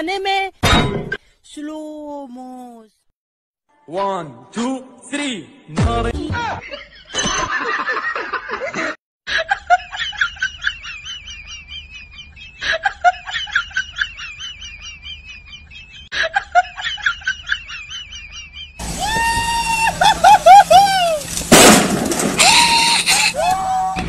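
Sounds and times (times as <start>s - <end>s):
high-pitched cackling: 16.9s - 21.4s, 22.4s - 23.8s.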